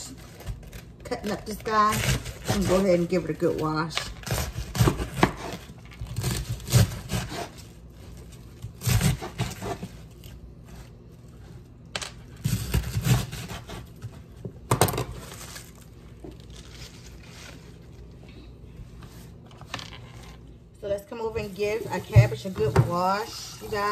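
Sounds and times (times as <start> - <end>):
knife cutting cabbage: 0.0 - 10.9, 12.3 - 14.3, 21.4 - 23.9
cabbage leaves pulled apart: 15.2 - 18.2.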